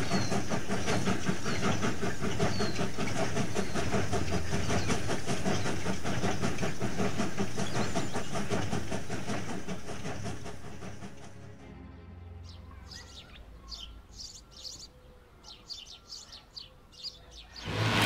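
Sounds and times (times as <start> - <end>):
steam hiss: 0.0 - 11.2
steam train running: 0.0 - 18.0.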